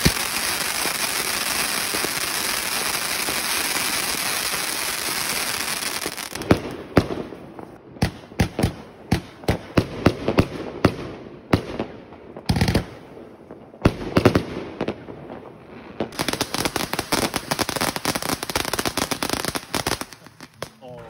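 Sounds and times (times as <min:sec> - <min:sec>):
firework cake bangs: 0:00.0 - 0:02.1
firework fountain spraying sparks: 0:00.0 - 0:06.4, 0:16.1 - 0:20.8
fast firework crackling: 0:00.0 - 0:07.4, 0:15.9 - 0:20.9.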